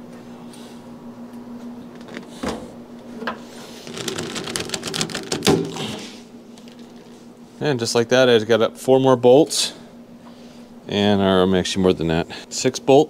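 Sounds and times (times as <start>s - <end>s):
corrugated hose crinkling clicks: 3.3s - 5.7s.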